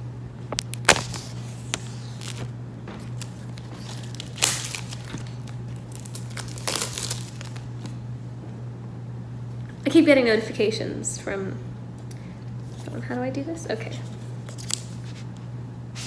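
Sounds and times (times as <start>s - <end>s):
low steady hum: 0.0s - 16.0s
cardboard and plastic rustling: 0.5s - 8.0s.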